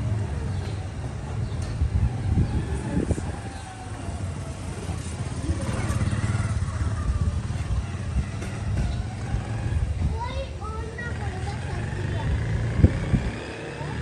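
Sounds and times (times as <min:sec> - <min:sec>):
motorcycle engine idling: 0:03.7 - 0:09.9.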